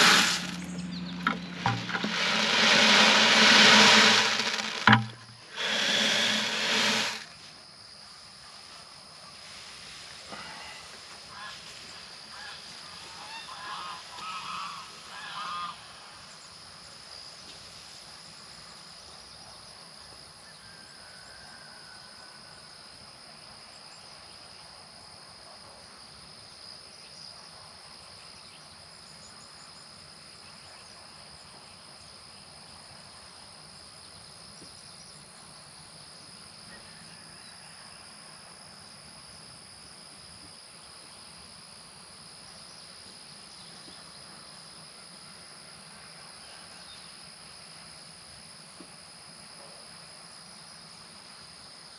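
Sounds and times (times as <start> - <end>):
insects chirring: 0.0 - 8.8.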